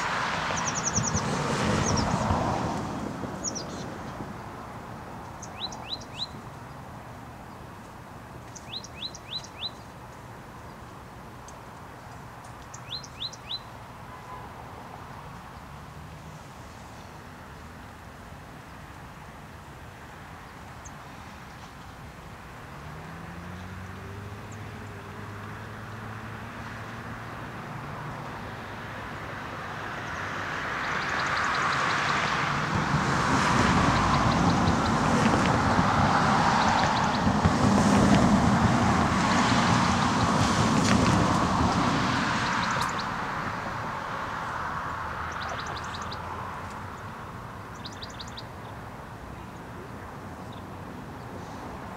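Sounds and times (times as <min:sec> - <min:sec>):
small bird chirping: 0:05.4 - 0:06.4, 0:08.5 - 0:09.9, 0:12.6 - 0:13.7, 0:47.7 - 0:48.5
car driving off: 0:22.8 - 0:28.2.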